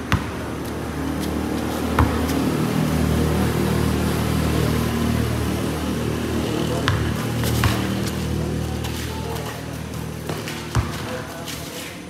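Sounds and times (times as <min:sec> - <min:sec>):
basketball bouncing on concrete: 0:00.0 - 0:02.4, 0:06.8 - 0:08.2, 0:08.8 - 0:11.6
low engine hum: 0:00.0 - 0:11.4.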